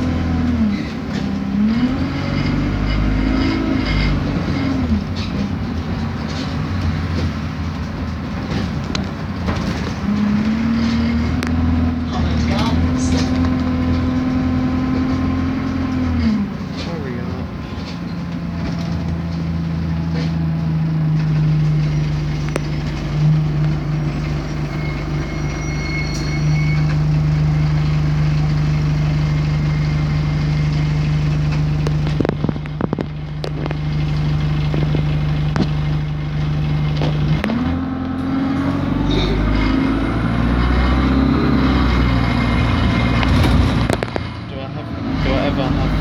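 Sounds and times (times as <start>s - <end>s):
bus diesel engine droning: 0.0s - 46.0s
rising engine whine: 9.5s - 46.0s.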